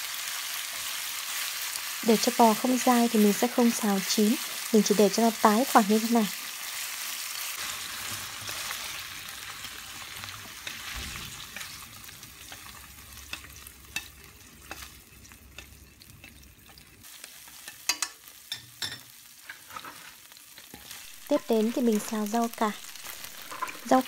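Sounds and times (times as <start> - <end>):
beef sizzling in a frying pan: 0.0 - 24.0
chopsticks clicking against pan: 17.7 - 18.6.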